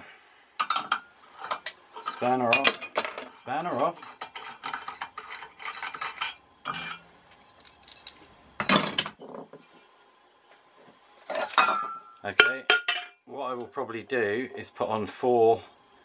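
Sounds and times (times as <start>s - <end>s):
metallic clinks and rattles: 4.8s - 9.1s.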